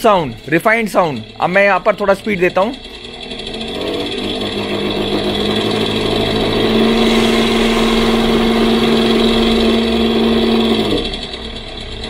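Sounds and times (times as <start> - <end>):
synthetic engine hum from scooter: 2.2 - 12.0.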